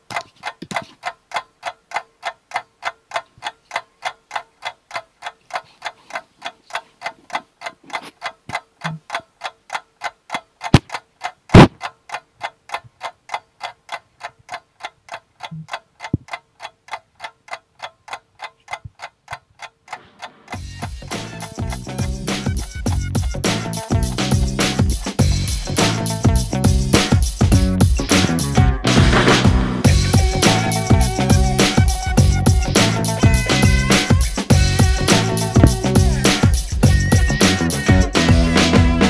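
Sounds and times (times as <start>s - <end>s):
clock ticking: 0.0s - 39.0s
loud sharp clicks: 10.3s - 13.4s.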